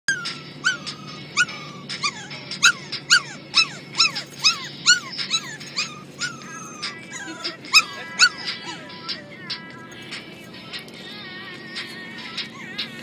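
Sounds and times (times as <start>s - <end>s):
dog yipping and whining: 0.1s - 9.3s, 12.2s - 13.0s
low car hum: 0.1s - 13.0s
pop music ringtone: 0.1s - 13.0s.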